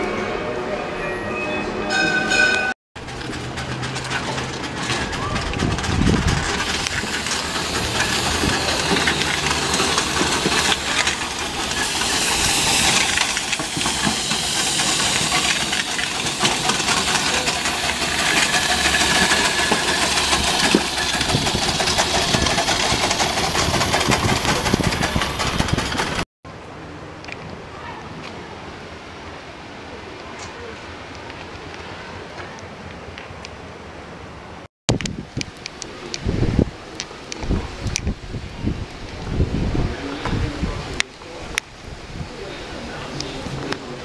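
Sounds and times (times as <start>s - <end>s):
steam engine hissing: 3.1s - 26.2s.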